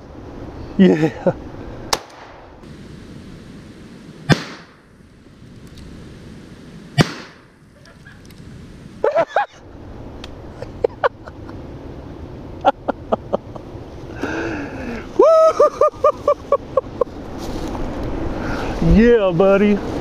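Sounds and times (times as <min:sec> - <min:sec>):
shotgun blast: 0:01.9 - 0:02.5, 0:04.2 - 0:04.8, 0:07.0 - 0:07.5.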